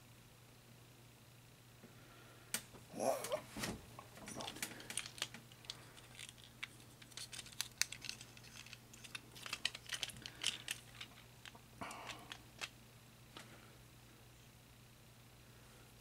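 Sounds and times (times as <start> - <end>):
plastic toy parts clicking: 4.3 - 12.7.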